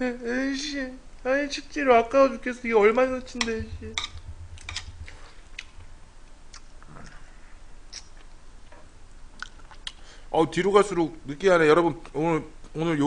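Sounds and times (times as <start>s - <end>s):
man chewing food: 5.5s - 7.2s, 9.3s - 10.0s.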